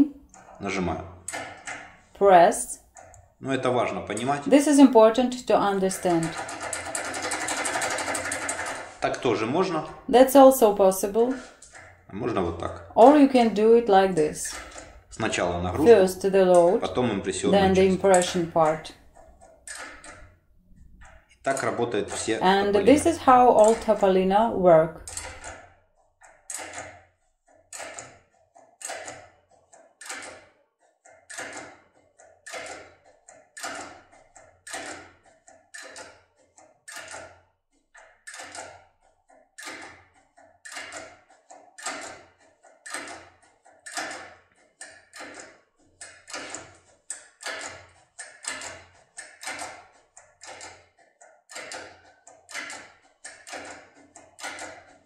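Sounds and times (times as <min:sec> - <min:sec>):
small metallic clicks of lock tool: 0:25.0 - 0:37.4, 0:38.0 - 0:55.0.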